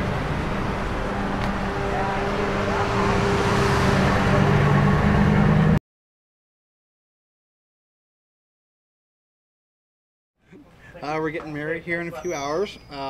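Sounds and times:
pickup truck driving past: 0:00.0 - 0:05.8.

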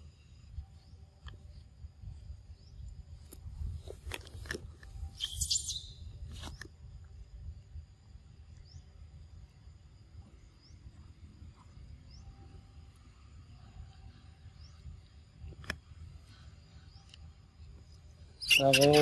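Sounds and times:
faint short chirps: 0:05.0 - 0:06.6, 0:18.4 - 0:19.0.

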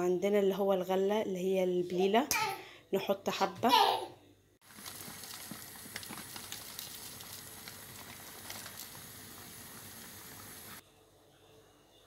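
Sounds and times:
pot simmering with pops: 0:04.6 - 0:10.8.

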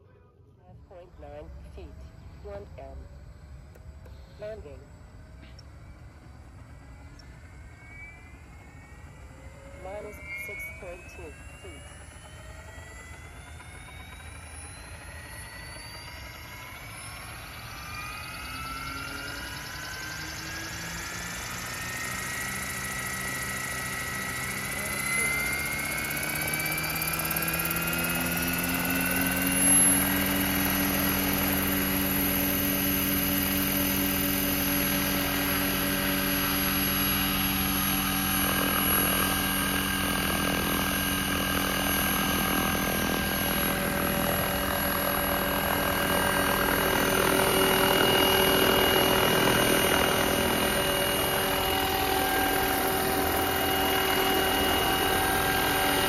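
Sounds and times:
rc helicopter motor and rotor whine: 0:00.7 - 0:56.0.

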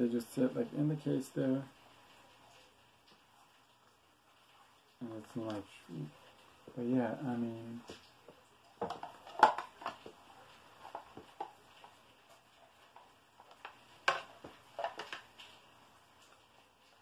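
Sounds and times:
plastic clicks taps and rustles: 0:07.9 - 0:10.2, 0:12.9 - 0:15.6.

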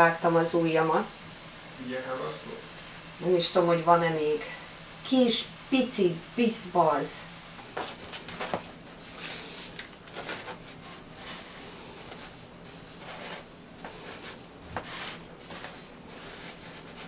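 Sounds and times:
bread rustling: 0:07.6 - 0:17.0.

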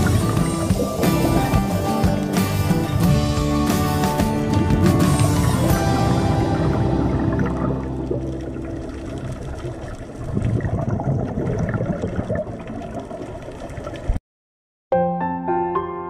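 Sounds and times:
bubbles gurgling underwater: 0:06.3 - 0:14.2.

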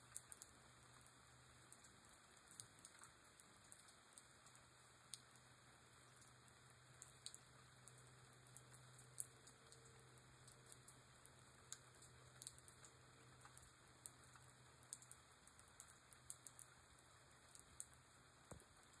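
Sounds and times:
raindrops pattering: 0:00.0 - 0:19.0.

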